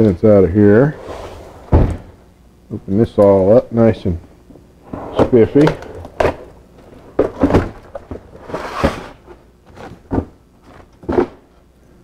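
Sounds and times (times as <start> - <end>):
rustling slide: 0.7 - 2.2, 8.4 - 9.2
knocks and thuds on workbench: 1.7 - 2.1.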